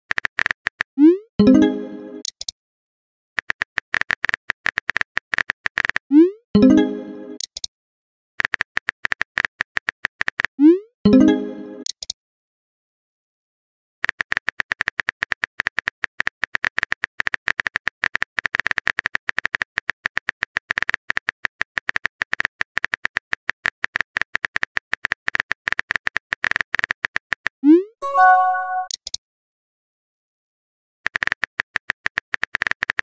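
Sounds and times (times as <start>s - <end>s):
rapid keyboard typing clicks: 3.4s - 6.0s, 8.4s - 10.5s, 14.0s - 27.5s, 31.1s - 33.0s.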